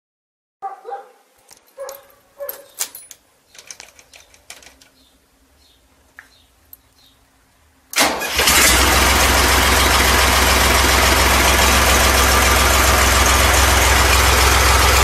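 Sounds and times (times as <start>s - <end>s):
handling clicks and knocks: 1.4s - 5.1s.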